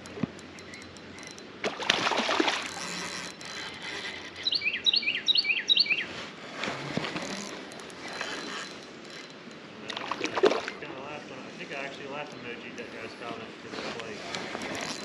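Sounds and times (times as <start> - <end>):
fishing reel gears cranking: 0.0 - 5.0, 6.5 - 13.3, 14.0 - 15.0
small bird chirping: 4.4 - 6.1.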